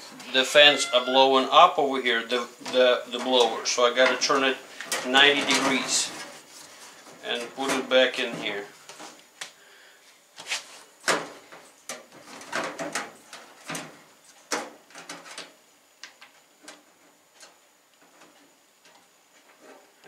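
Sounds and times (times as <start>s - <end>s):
clicks knocks and scrapes of metal parts: 10.4s - 20.0s.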